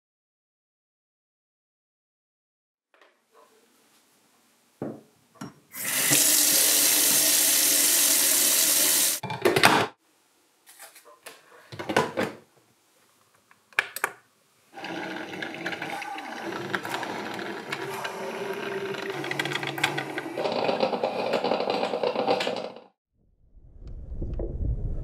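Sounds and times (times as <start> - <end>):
coffee maker brewing: 5.8 - 9.2, 14.8 - 22.8.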